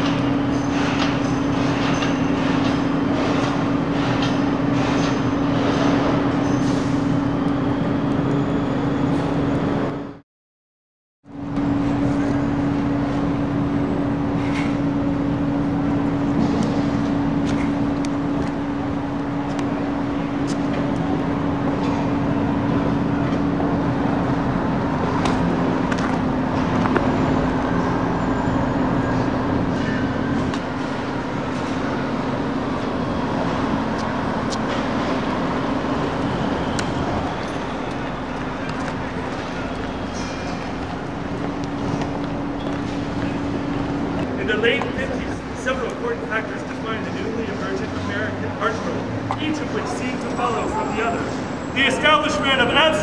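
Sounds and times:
street traffic: 0:00.0 - 0:10.2, 0:11.2 - 0:53.0
constant low hum: 0:11.3 - 0:53.0.

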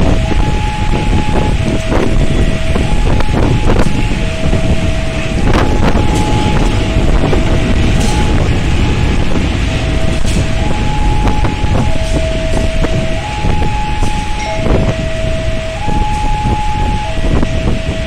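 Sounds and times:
diesel locomotive passing: 0:00.0 - 0:18.0
level crossing alarm two-tone: 0:00.0 - 0:18.0
wind and rain on microphone: 0:00.0 - 0:18.0
train wheels clacking: 0:05.4 - 0:13.2.

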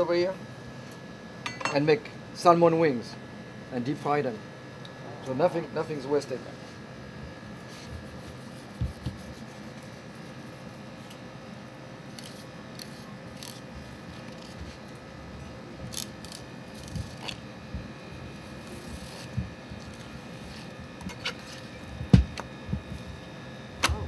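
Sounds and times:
room hum: 0:00.0 - 0:24.0
knife slicing fish: 0:07.6 - 0:10.8.

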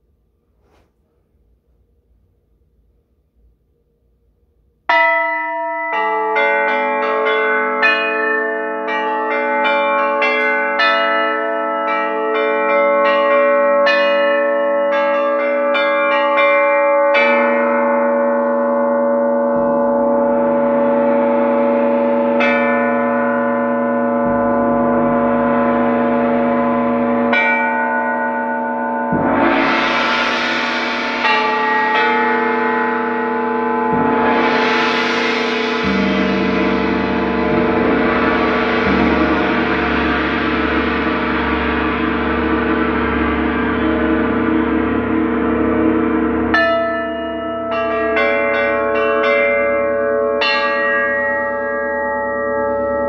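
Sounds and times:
gongs and bells ringing: 0:04.9 - 0:53.0
deep low hum: 0:17.9 - 0:47.3.

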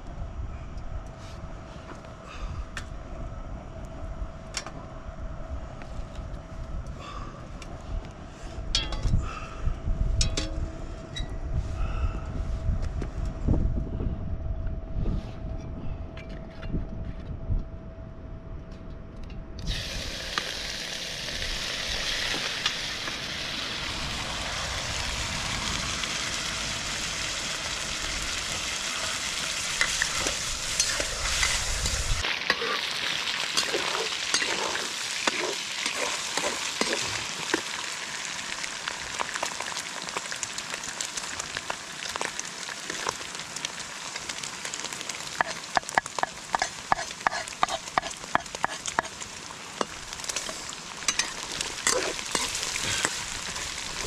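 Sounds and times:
low rumble: 0:00.0 - 0:19.6, 0:21.2 - 0:32.2
meat sizzling in a wok: 0:19.7 - 0:54.0
metal spatula scraping wok: 0:29.7 - 0:37.1, 0:46.2 - 0:49.2, 0:50.4 - 0:53.6.

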